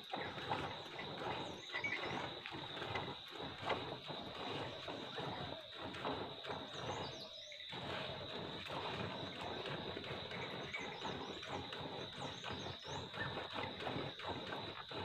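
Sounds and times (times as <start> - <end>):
birds chirping faintly: 6.5 - 7.7.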